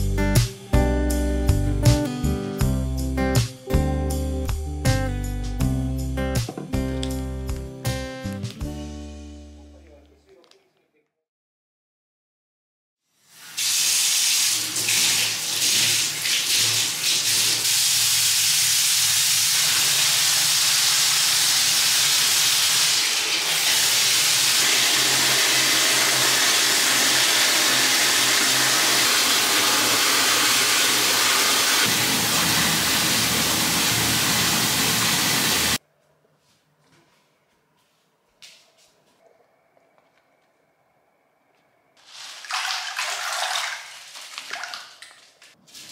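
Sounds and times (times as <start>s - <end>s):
water pouring from bath tap: 13.3s - 35.8s, 42.0s - 45.9s.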